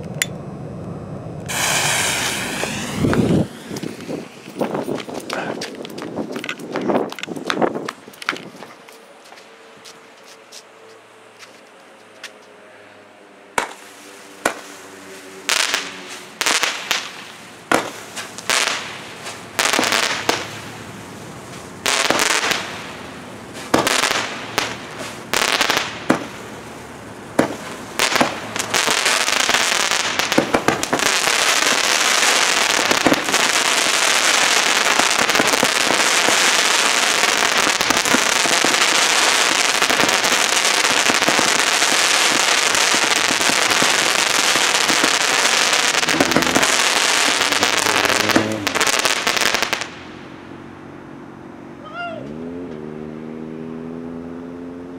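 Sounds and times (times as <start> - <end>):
fireworks cake firing: 1.4 - 8.4, 15.6 - 26.7, 27.3 - 50.0.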